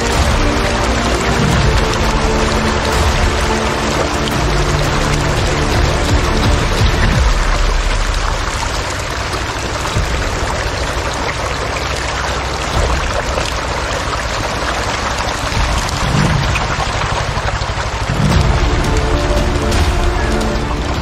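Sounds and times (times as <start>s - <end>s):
fish splashing in water: 0.0s - 21.0s.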